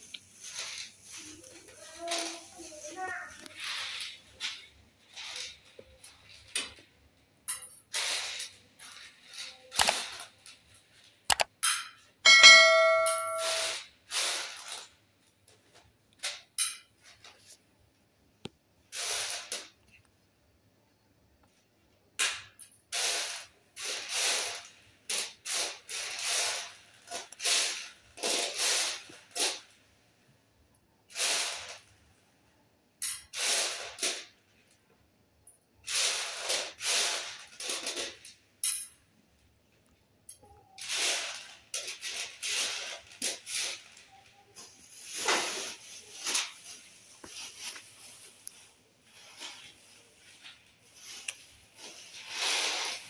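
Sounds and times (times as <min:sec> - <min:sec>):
dried beans rattling on metal tray: 0:22.9 - 0:29.7, 0:35.9 - 0:39.0, 0:40.8 - 0:48.2.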